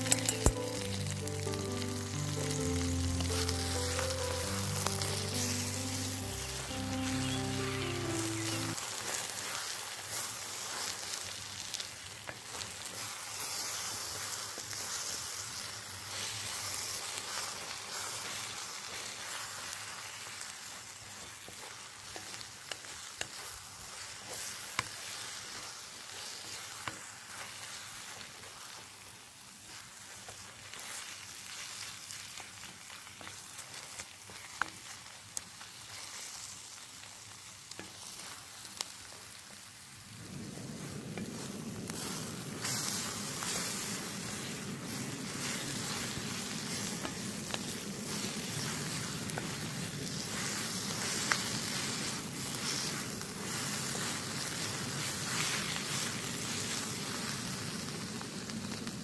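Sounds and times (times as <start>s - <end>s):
vegetables sizzling in a wok: 0.0s - 59.0s
wooden spatula scraping wok: 40.8s - 57.2s.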